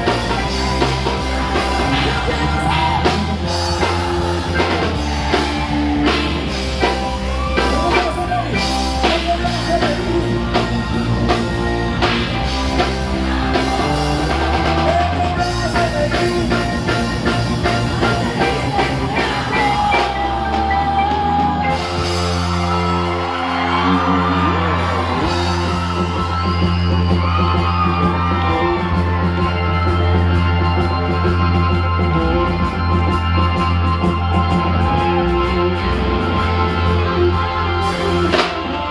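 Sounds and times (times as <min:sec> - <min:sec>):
drum kit: 0:00.0 - 0:38.9
electric bass: 0:00.0 - 0:38.9
person singing: 0:01.5 - 0:10.8, 0:13.0 - 0:22.4.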